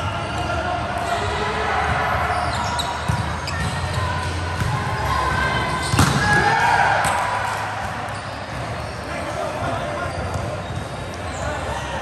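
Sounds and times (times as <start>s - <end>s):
players shouting: 0.0s - 8.2s
murmur of echoing gym: 0.0s - 12.0s
volleyball smack: 5.8s - 7.2s.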